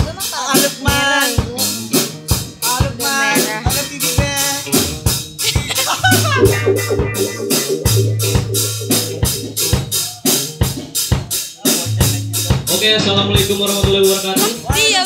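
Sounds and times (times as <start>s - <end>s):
rock band playing: 6.0s - 10.1s
held bass note: 6.2s - 10.1s
cymbal strokes: 6.3s - 10.1s
person singing: 6.4s - 9.8s.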